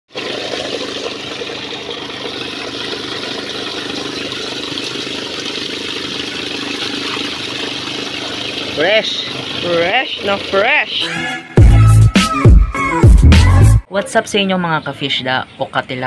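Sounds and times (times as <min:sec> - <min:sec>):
motor hum: 0:00.1 - 0:11.0
water splashing: 0:00.1 - 0:11.1.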